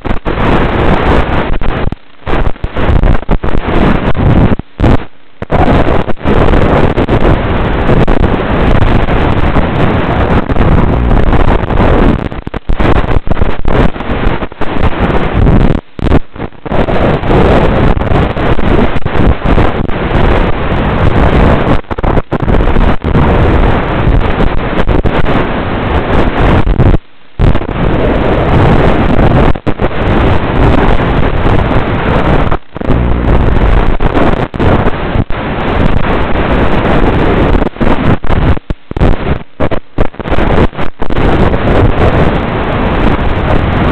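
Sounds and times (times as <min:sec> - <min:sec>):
wind rushing over microphone: 0:00.0 - 0:43.9
propeller noise: 0:01.2 - 0:20.1, 0:21.5 - 0:24.1, 0:27.6 - 0:35.4.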